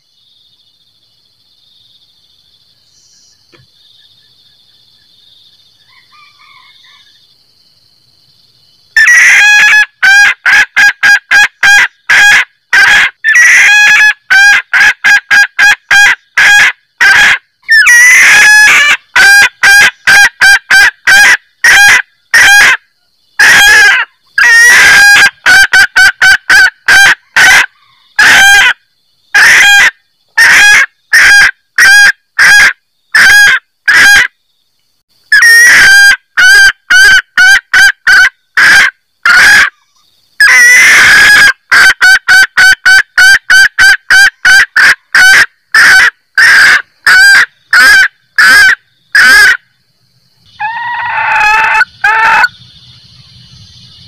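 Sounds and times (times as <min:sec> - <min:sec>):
hen cackling: 0:09.0 - 0:34.3, 0:35.3 - 0:39.8, 0:40.4 - 0:49.6, 0:50.5 - 0:52.6.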